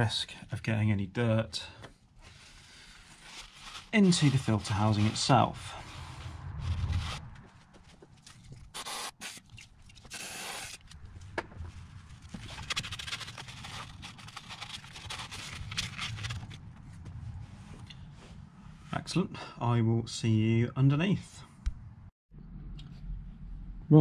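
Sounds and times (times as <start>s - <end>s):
paper towel rubbing metal: 2.7s - 7.3s.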